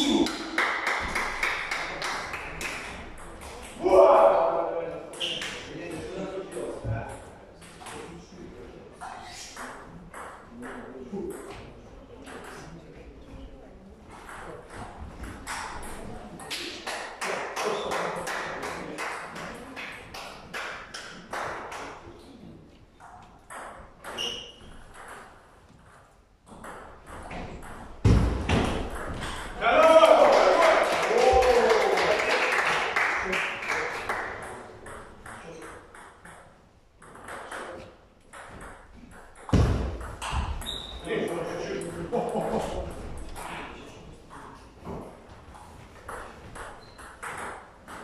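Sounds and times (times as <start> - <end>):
table tennis ball bouncing: 14.1 - 16.7, 23.0 - 29.6, 34.4 - 41.4, 46.0 - 48.0
ball bouncing on table: 34.8 - 41.0.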